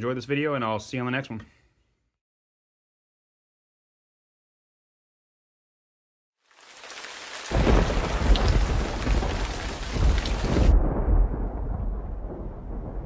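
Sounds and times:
rain hiss: 6.4s - 10.7s
rolling thunder rumble: 7.5s - 13.0s.

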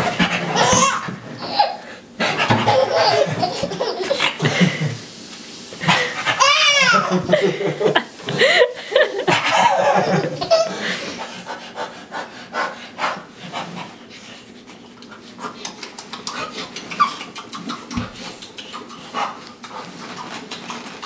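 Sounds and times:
baby laughing: 0.1s - 5.0s, 5.9s - 11.2s, 15.9s - 18.0s
man panting like a dog: 10.7s - 14.6s.

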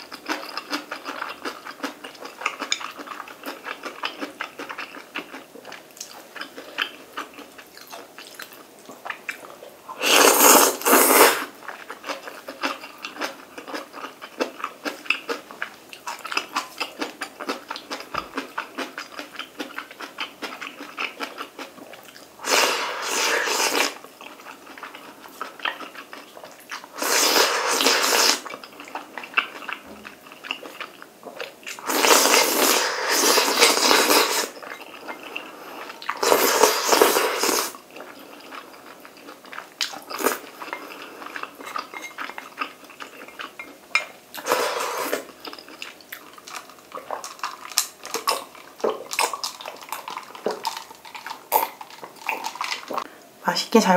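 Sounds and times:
wet chewing and lip-smacking: 0.0s - 9.6s, 11.6s - 22.3s, 23.7s - 26.9s, 28.2s - 32.4s, 37.9s - 44.5s, 45.1s - 53.1s
slurping noodles: 10.0s - 11.5s, 22.4s - 24.0s, 26.9s - 28.5s, 31.7s - 34.7s, 35.3s - 37.8s, 44.4s - 45.3s.

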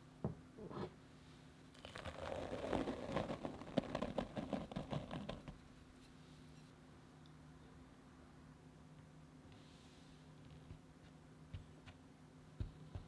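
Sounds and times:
flour pouring into bowl: 1.8s - 5.4s.

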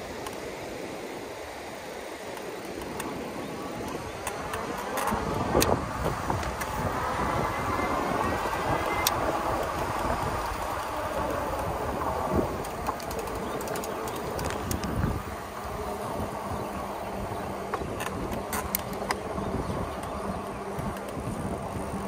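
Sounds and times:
tyre and wind noise: 0.0s - 22.0s
electric motor buzzing hum: 2.4s - 22.0s
sharp clicks: 12.5s - 15.1s.

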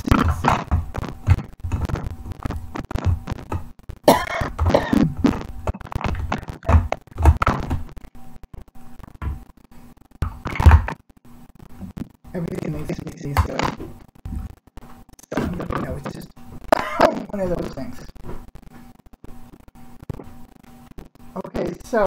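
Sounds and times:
woman coughing: 4.1s - 5.1s, 16.8s - 17.3s.

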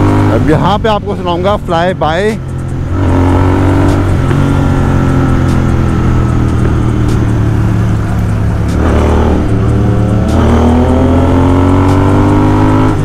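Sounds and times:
motorcycle engine drone: 0.0s - 13.0s.

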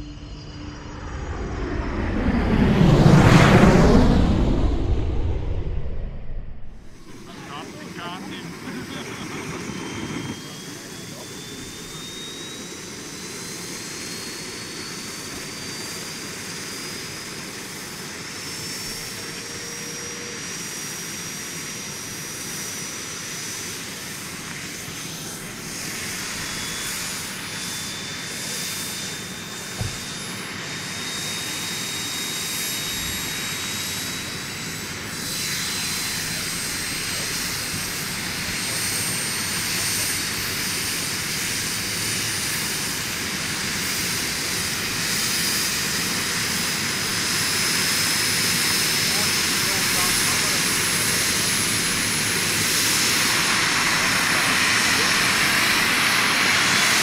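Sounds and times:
steady rushing noise: 0.0s - 12.1s
model helicopter whine: 0.0s - 57.0s.

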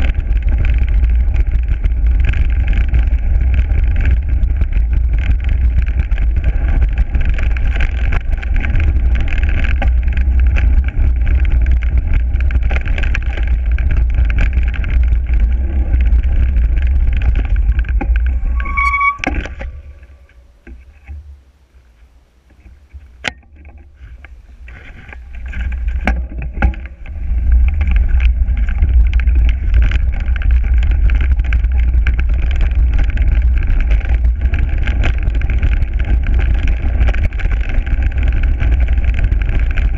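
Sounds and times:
mountain bike rattling over ground: 0.0s - 21.0s, 22.8s - 39.9s
short high squeal: 18.2s - 20.6s
wind buffeting microphone: 24.4s - 39.9s.

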